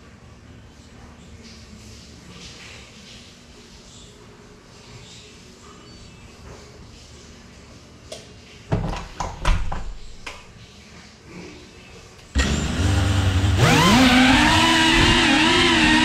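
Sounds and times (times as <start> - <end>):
drone motors whirring and whining: 12.4 - 16.0.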